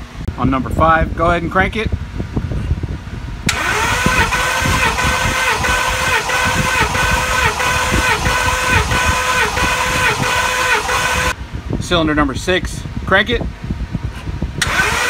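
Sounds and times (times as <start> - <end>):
starter motor cranking engine: 3.5 - 11.4, 14.6 - 15.0.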